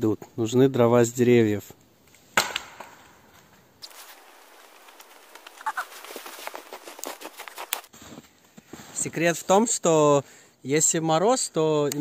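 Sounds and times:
carried branches crackling: 0:02.0 - 0:07.9
dry branch cracking: 0:02.1 - 0:07.9
footsteps crunching through snow: 0:03.8 - 0:09.0.

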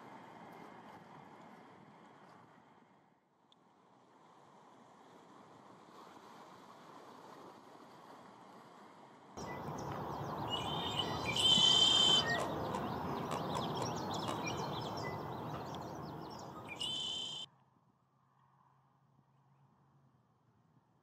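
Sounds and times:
bird chip notes: 0:09.4 - 0:17.5
blackbird trilled song: 0:09.4 - 0:17.5
steady background rush: 0:09.4 - 0:17.5.

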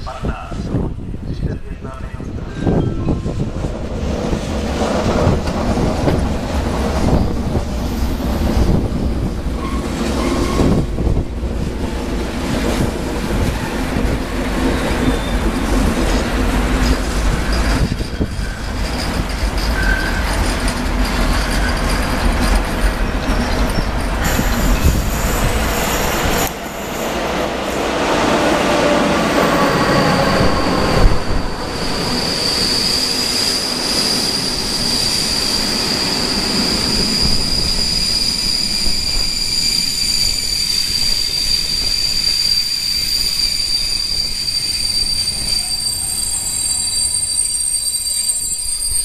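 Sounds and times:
train wheels rumbling on rails: 0:00.0 - 0:49.0
wheels squealing: 0:14.6 - 0:27.4, 0:28.2 - 0:49.0.

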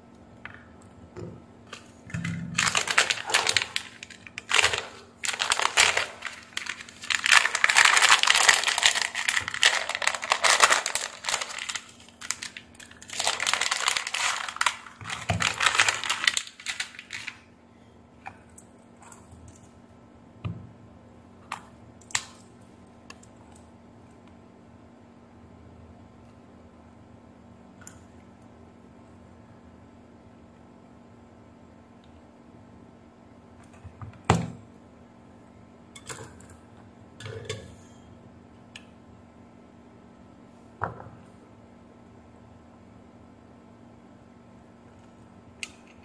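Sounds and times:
plastic bag crinkling: 0:02.2 - 0:17.5.

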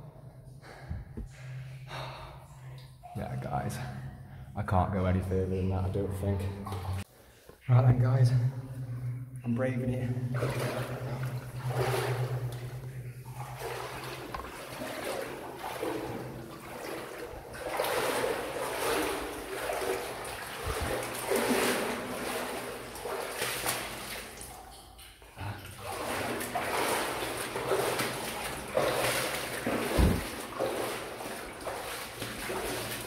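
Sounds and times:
boots splashing through water: 0:10.3 - 0:33.0.

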